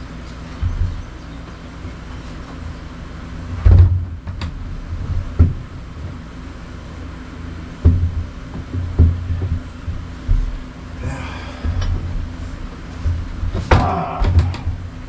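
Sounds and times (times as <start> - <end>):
steady low hum: 0.0 - 15.0
door thumping against wood framing: 13.1 - 14.9.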